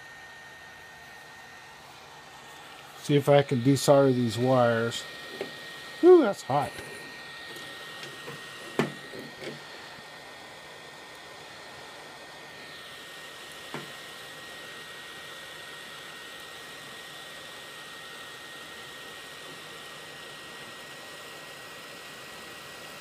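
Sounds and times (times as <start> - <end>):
hot air gun blowing: 1.8 - 11.2.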